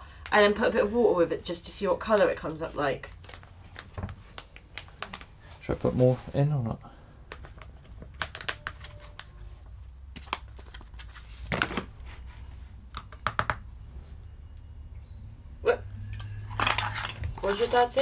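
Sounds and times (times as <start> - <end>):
plastic sachet crinkling: 7.4 - 9.4
low steady hum: 13.7 - 18.0.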